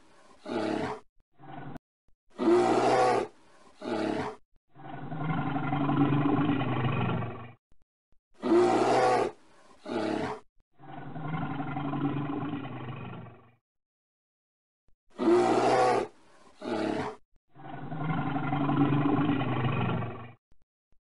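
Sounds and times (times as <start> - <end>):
bear roaring: 0.2 - 1.8, 2.4 - 7.4, 8.4 - 13.4, 15.2 - 20.2.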